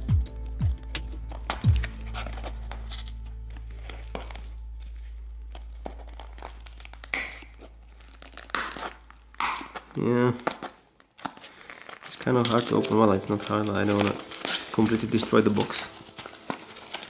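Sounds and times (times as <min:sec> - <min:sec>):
background music: 0:00.0 - 0:07.9, 0:12.2 - 0:17.0
paper seal crinkling: 0:01.3 - 0:17.0
paper tearing: 0:01.3 - 0:17.0.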